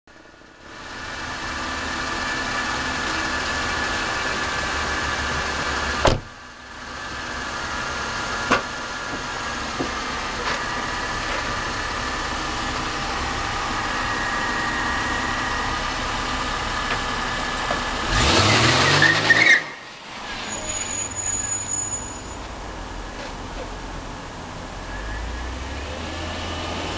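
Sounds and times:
car engine running: 0.1s - 18.4s
wheel squealing: 18.1s - 22.5s.

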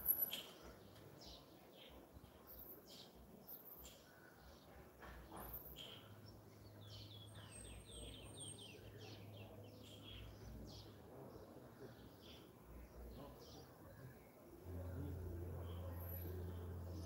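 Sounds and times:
steady low hum: 14.5s - 17.0s.

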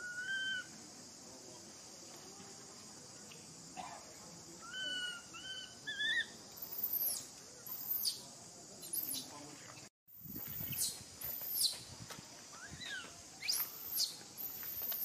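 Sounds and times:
high insect buzz: 10.1s - 15.0s.

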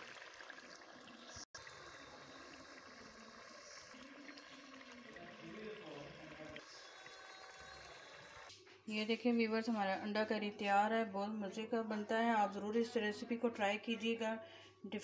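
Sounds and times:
gravy bubbling in a pot: 0.0s - 8.5s.

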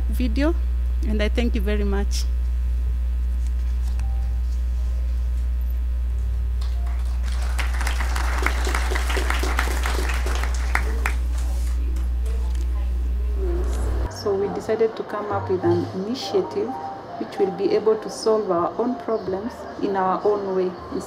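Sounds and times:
low hum: 0.0s - 18.9s
audience applauding: 6.6s - 11.8s.

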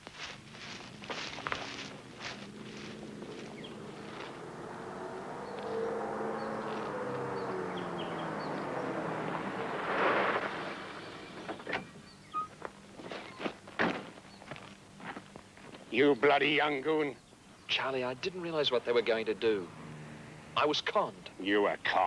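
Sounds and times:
tyres on gravel rushing: 0.4s - 12.1s
car engine passing: 0.5s - 12.3s, 17.8s - 21.8s.

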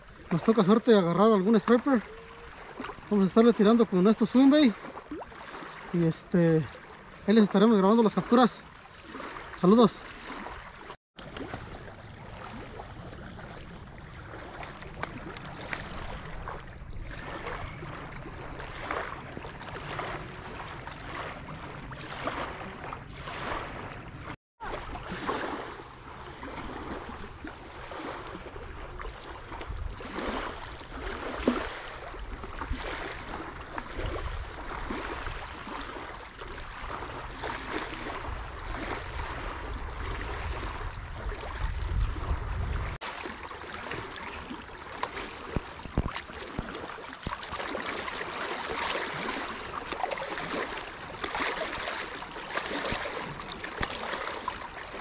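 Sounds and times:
waves lapping on pebbles: 0.0s - 55.0s
wind rumble on microphone: 25.9s - 43.0s.

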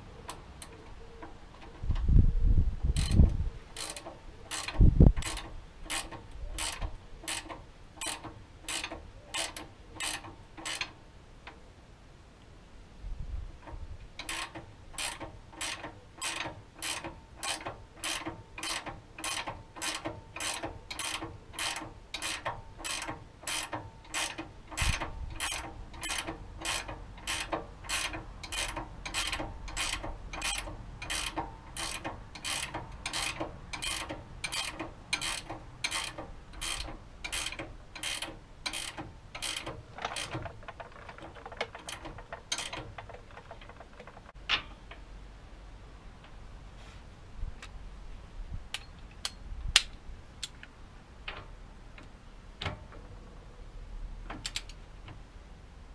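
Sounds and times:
ratchet wrench clicking: 2.9s - 11.0s, 14.2s - 43.2s.

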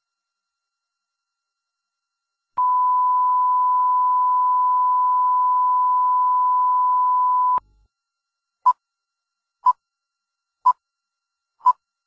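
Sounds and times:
steady electronic beep tone: 2.6s - 7.6s.

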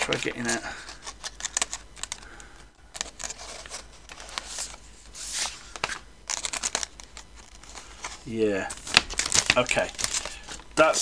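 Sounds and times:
plastic sleeve rustling: 3.0s - 11.0s.

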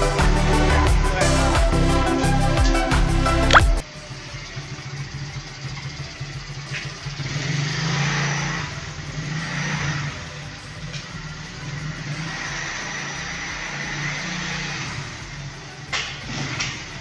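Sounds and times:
small motorcycle engine revving: 3.9s - 17.0s.

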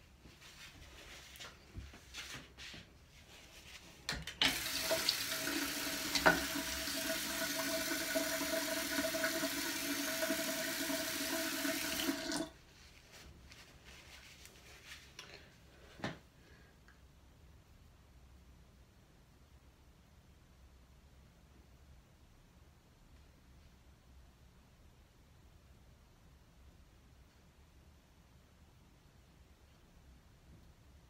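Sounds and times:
tap water running into basin: 4.2s - 12.6s.

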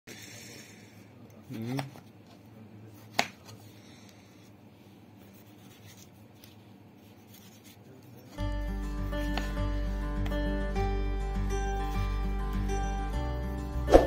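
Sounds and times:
background music: 8.4s - 14.0s.

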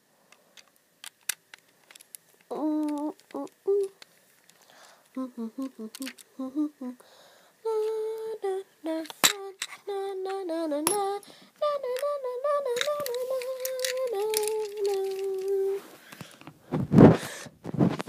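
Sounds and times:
plastic toy clicks: 0.6s - 4.6s, 5.6s - 6.3s, 12.7s - 15.6s
person humming a wavering tune: 2.5s - 4.0s, 5.1s - 15.9s.

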